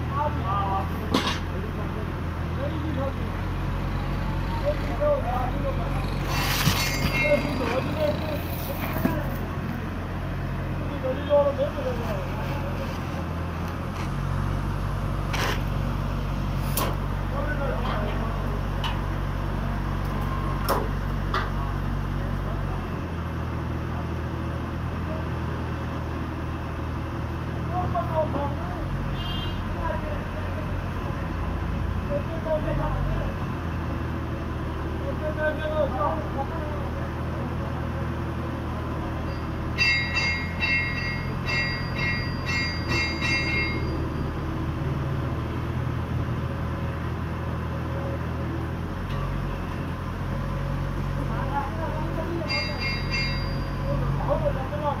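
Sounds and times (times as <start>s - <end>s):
truck engine running: 0.0s - 29.1s, 29.8s - 55.0s.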